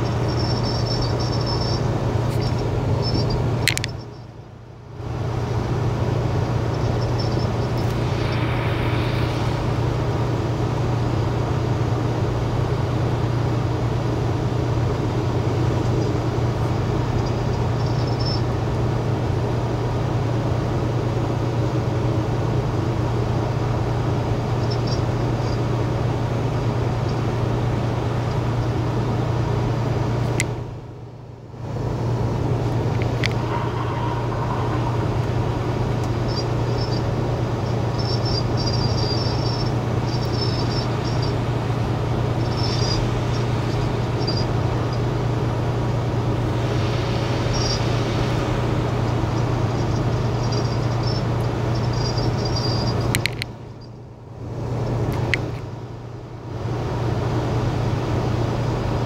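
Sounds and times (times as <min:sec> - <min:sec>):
car engine hum: 0:00.0 - 0:12.5, 0:31.4 - 0:55.7.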